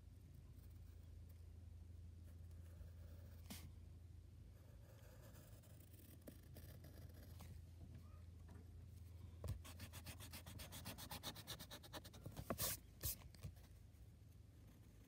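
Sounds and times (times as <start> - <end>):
eraser rubbing on paper: 9.7 - 13.2
swipes across paper: 9.7 - 13.3.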